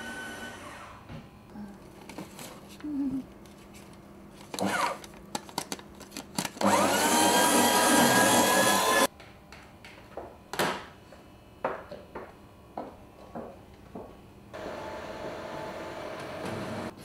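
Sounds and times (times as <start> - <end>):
paper shredder grinding: 0.0 - 0.9, 4.4 - 5.7, 6.4 - 9.1, 14.6 - 16.9.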